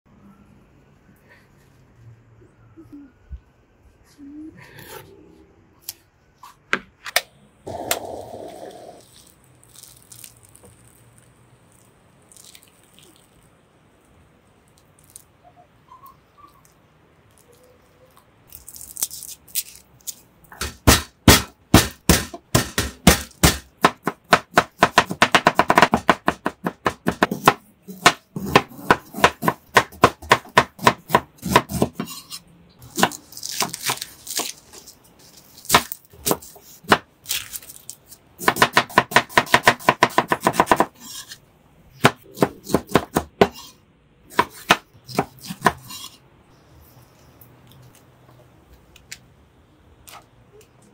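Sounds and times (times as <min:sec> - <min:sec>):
knife chopping on cutting board: 0:20.6 - 0:32.2, 0:38.4 - 0:41.3, 0:42.0 - 0:43.7, 0:44.3 - 0:46.1.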